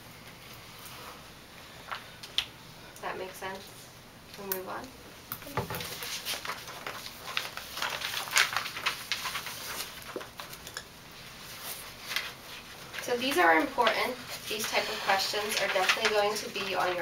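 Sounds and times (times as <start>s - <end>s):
paper rustling: 5.7s - 10.7s, 11.3s - 17.0s.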